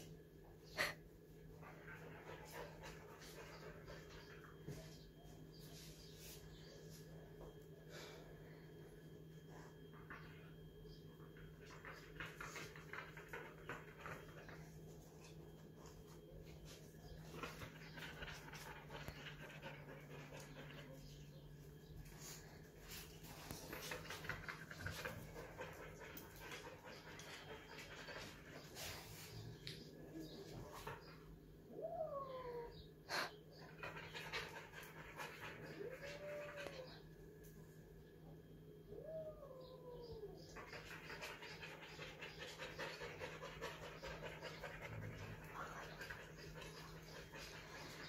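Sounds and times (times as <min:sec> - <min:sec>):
steady low hum: 0:00.0 - 0:48.0
pet panting: 0:00.6 - 0:06.5, 0:11.4 - 0:31.3, 0:33.1 - 0:37.0, 0:40.4 - 0:48.0
dog sounds: 0:09.7 - 0:22.0, 0:39.6 - 0:48.0.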